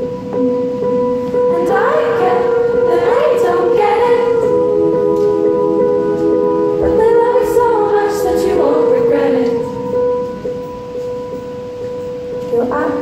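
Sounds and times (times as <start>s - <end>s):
woman singing pop ballad: 1.5s - 4.7s, 6.8s - 9.8s.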